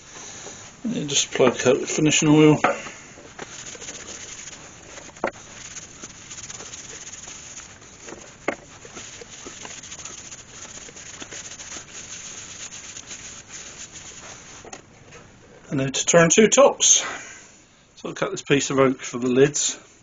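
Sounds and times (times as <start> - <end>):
cloth rubbing hiss: 0.0 - 14.9.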